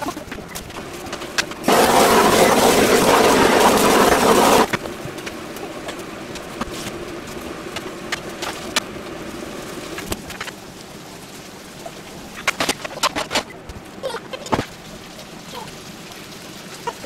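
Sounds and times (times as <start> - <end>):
pan sizzling: 0.0 - 17.0
sauce sizzling in hot pan: 0.8 - 12.4.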